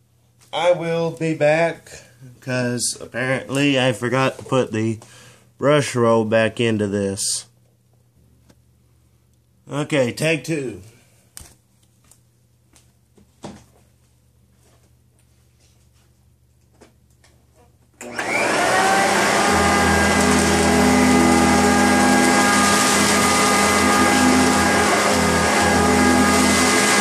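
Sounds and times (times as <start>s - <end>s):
vacuum cleaner motor whine: 18.0s - 27.0s.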